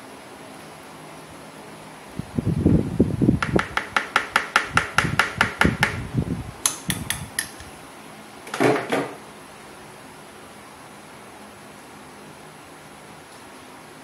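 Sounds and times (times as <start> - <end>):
metal sieve tapping: 6.6 - 7.7.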